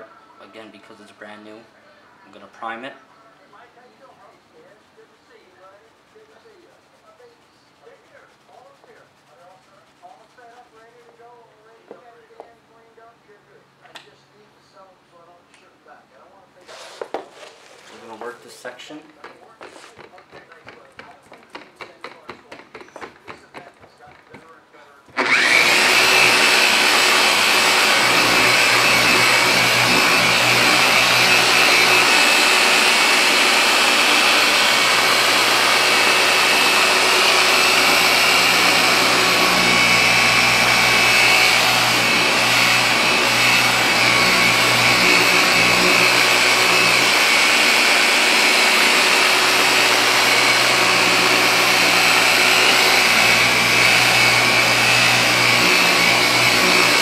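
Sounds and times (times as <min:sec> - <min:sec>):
car polisher whining: 0:17.9 - 0:57.0.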